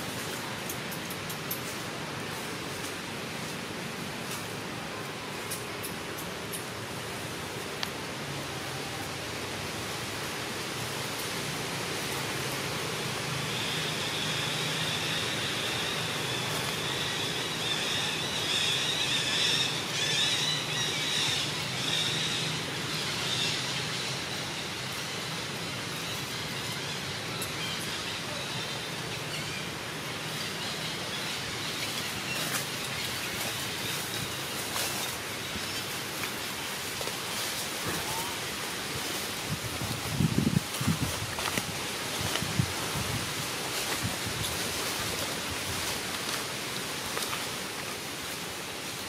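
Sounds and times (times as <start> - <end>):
outdoor background noise: 0.0 - 49.0.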